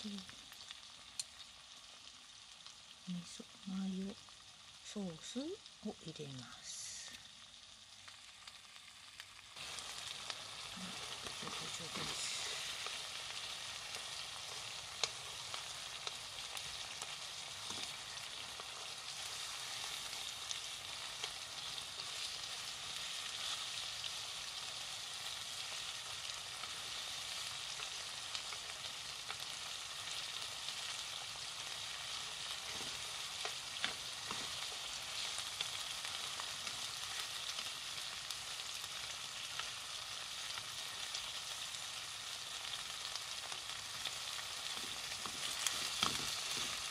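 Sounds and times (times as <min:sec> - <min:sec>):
chicken sizzling in frying pan: 0:00.0 - 0:46.9
chopsticks tapping a pan: 0:32.7 - 0:34.8, 0:44.7 - 0:46.9.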